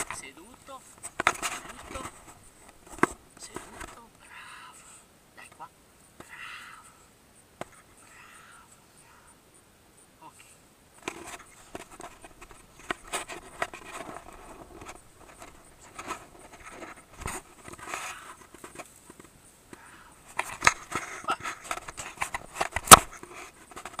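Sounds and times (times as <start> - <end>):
hands handling camera clicks and scrapes: 0.9 - 4.0, 11.0 - 19.4, 20.3 - 24.0.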